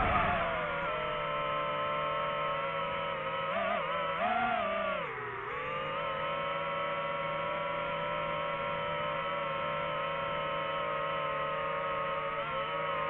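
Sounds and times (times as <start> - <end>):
drone propellers whining: 0.0 - 6.0.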